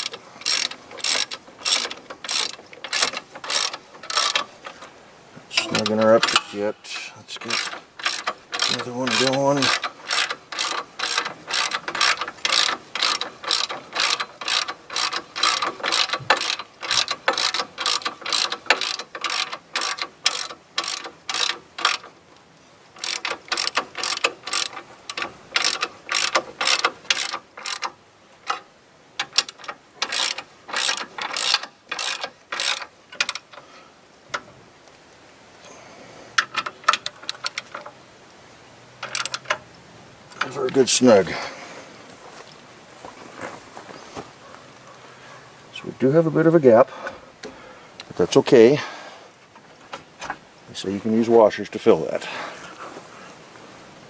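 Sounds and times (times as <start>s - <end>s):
hand ratchet clicking: 0.0s - 4.9s, 5.6s - 6.6s, 7.4s - 22.2s, 23.0s - 33.7s, 36.4s - 38.0s, 39.0s - 39.6s.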